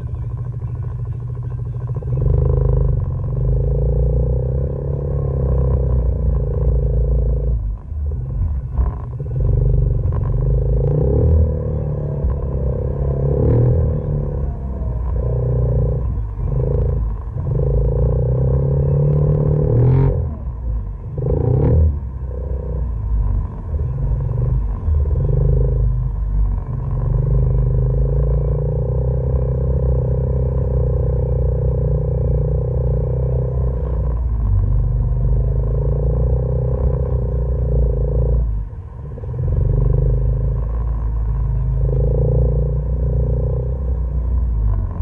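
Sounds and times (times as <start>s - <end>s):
utility vehicle engine droning: 0.0s - 45.0s.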